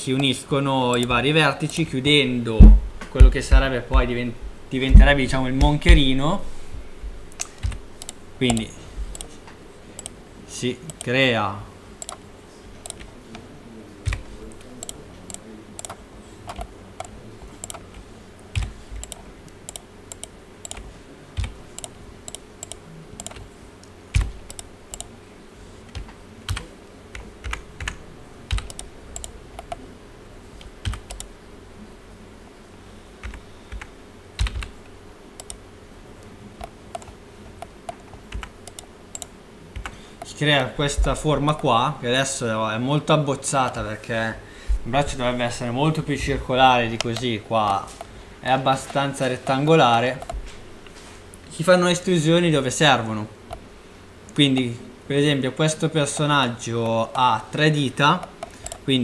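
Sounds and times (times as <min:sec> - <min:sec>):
faint steady hum: 0:00.0 - 0:59.0
computer keyboard typing: 0:07.3 - 0:09.3, 0:12.8 - 0:13.1, 0:14.0 - 0:23.5, 0:24.1 - 0:25.1, 0:25.9 - 0:29.8, 0:30.8 - 0:31.3, 0:33.2 - 0:34.8, 0:36.6 - 0:37.2, 0:37.9 - 0:40.0.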